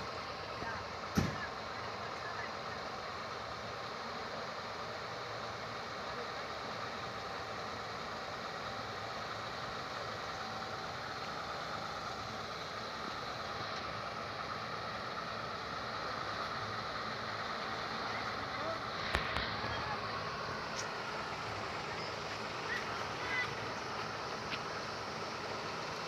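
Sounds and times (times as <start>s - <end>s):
heavy truck engine running: 0.0s - 26.0s.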